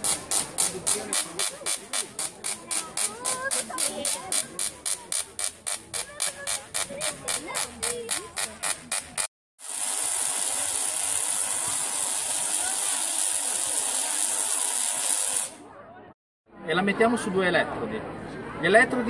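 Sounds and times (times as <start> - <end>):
high hiss of sparking: 9.0 - 15.6.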